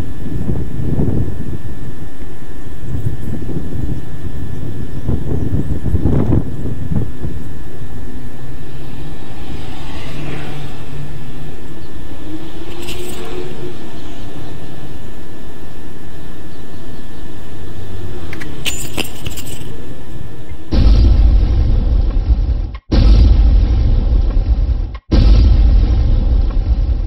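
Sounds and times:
low rumbling drone: 0:00.0 - 0:27.0
faint rising and falling tone: 0:07.2 - 0:22.3.

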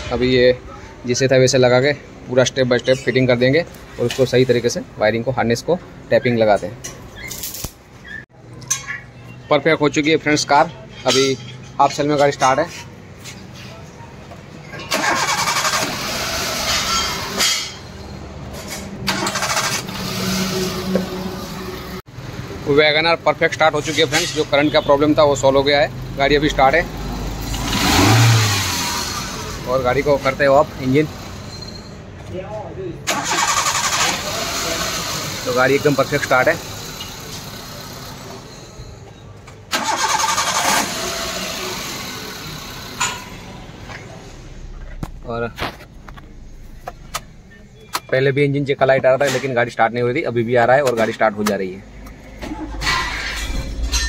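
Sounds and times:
car engine cranking and starting: 0:14.7 - 0:17.8, 0:18.7 - 0:22.0, 0:26.5 - 0:31.4, 0:33.0 - 0:38.5, 0:39.7 - 0:47.4, 0:52.0 - 0:54.0
car engine idling: 0:33.0 - 0:38.4, 0:39.7 - 0:48.0.

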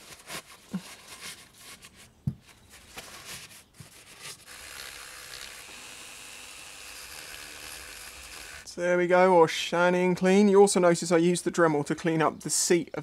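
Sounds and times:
rotary tool whining: 0:04.3 - 0:08.8.

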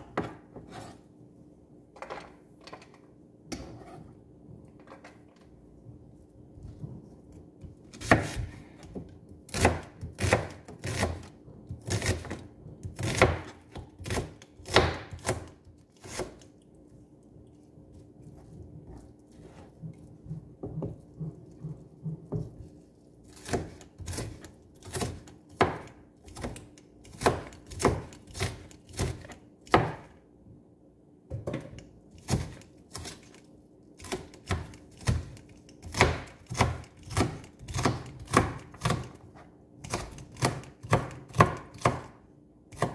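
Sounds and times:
knife cutting onion on board: 0:00.0 - 0:01.0, 0:03.5 - 0:04.1, 0:07.3 - 0:16.5, 0:18.3 - 0:30.2, 0:31.4 - 0:33.4, 0:34.0 - 0:42.9.

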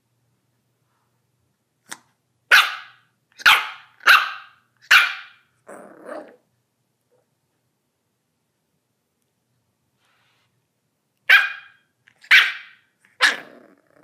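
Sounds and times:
puppy barking: 0:02.5 - 0:06.4, 0:11.2 - 0:13.6.

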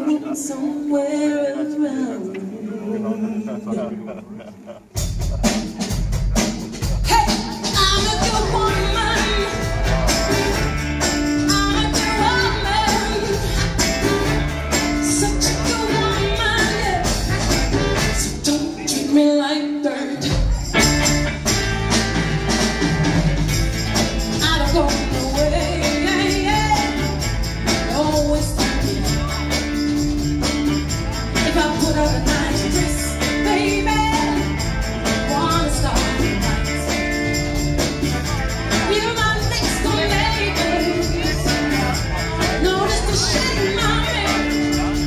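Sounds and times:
woman singing lead: 0:00.0 - 0:04.1, 0:06.9 - 0:10.3, 0:11.1 - 0:20.9, 0:24.3 - 0:30.3, 0:31.3 - 0:37.8, 0:38.7 - 0:45.0
soul band playing live: 0:04.5 - 0:45.0.

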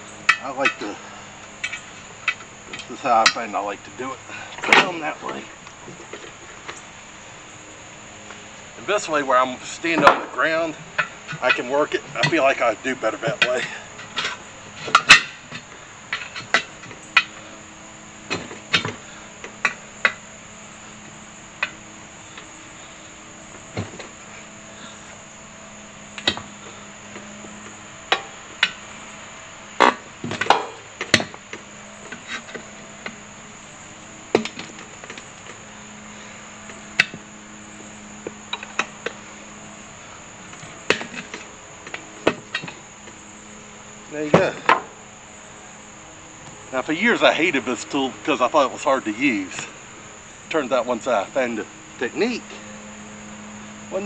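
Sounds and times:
insect chirring: 0:00.0 - 0:54.0
pry bar clanking on wheel rim: 0:00.2 - 0:03.5, 0:09.9 - 0:12.6, 0:13.2 - 0:17.5, 0:26.2 - 0:28.8, 0:29.8 - 0:33.2, 0:40.5 - 0:43.2.

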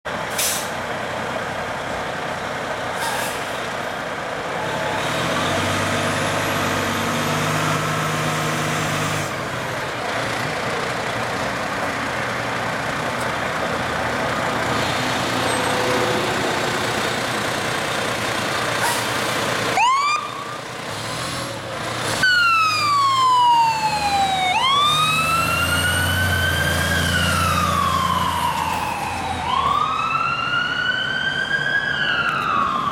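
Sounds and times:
fire engine diesel running: 0:06.0 - 0:32.9
electronic siren yelping and wailing: 0:19.8 - 0:20.6, 0:22.2 - 0:32.9.

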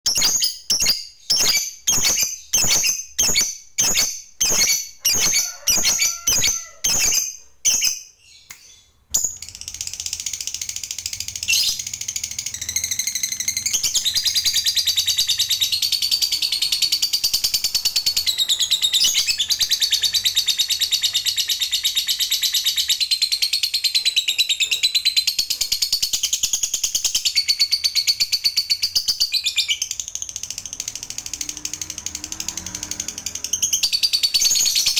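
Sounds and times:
bird chattering trill: 0:00.1 - 0:08.0
bird chirping: 0:00.1 - 0:34.9.

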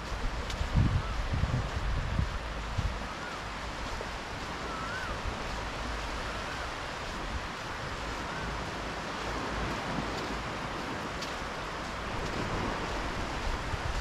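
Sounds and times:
surf washing on beach: 0:00.0 - 0:14.0
faint wavering whistle: 0:04.6 - 0:05.2.

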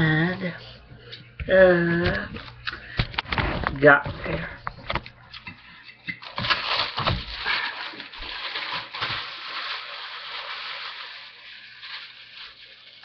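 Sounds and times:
plastic packaging crinkling: 0:06.2 - 0:13.0.

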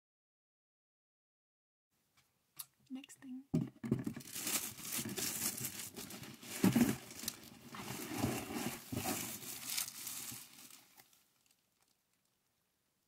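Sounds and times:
bubble wrap crinkling: 0:04.0 - 0:12.3.

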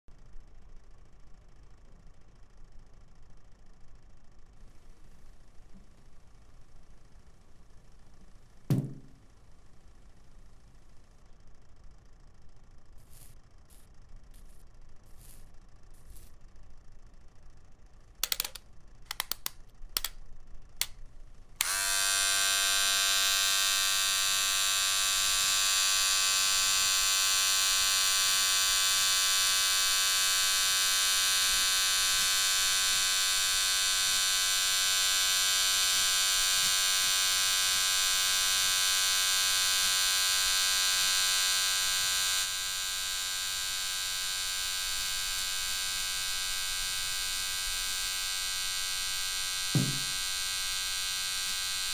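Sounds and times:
clicks: 0:18.2 - 0:20.2
beard trimmer buzzing: 0:21.6 - 0:51.9.

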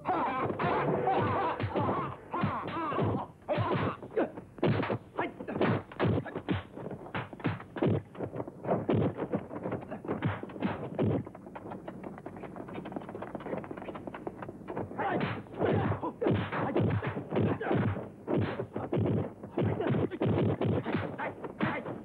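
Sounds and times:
punch and kick impacts: 0:15.1 - 0:21.8.

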